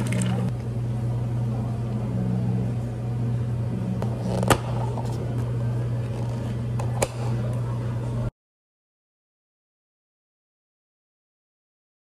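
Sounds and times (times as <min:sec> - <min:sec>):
low machine hum: 0:00.0 - 0:08.3.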